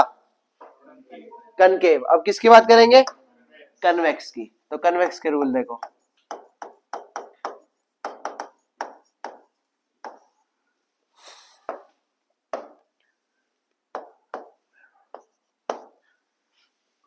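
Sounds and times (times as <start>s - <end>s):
pen tapping on glass: 5.8s - 10.3s, 13.9s - 16.0s.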